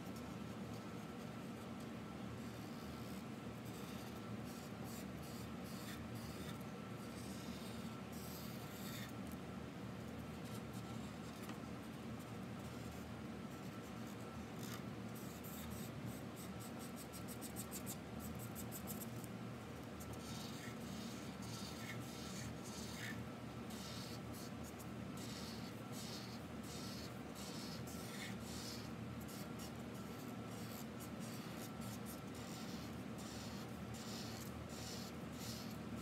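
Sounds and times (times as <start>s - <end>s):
low steady hum: 0.0s - 36.0s
marker scribbling on paper: 2.4s - 9.1s, 20.0s - 36.0s.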